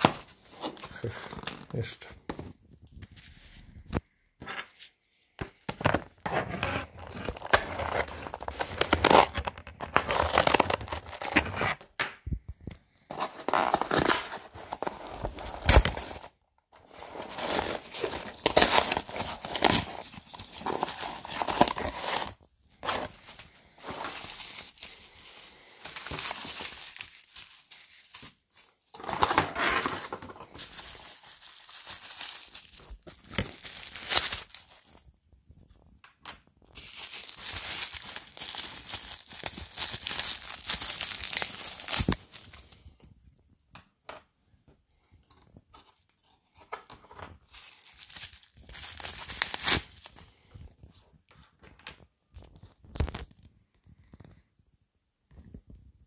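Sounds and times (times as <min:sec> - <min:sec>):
cardboard ripping and rustling: 0:06.2 - 0:11.8, 0:13.1 - 0:35.0, 0:36.8 - 0:42.7, 0:47.4 - 0:50.2.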